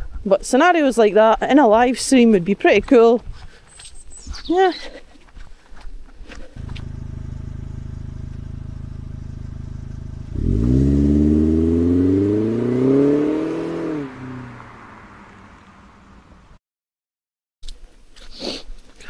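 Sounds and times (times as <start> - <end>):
vehicle engine running and revving: 6.6 - 16.6.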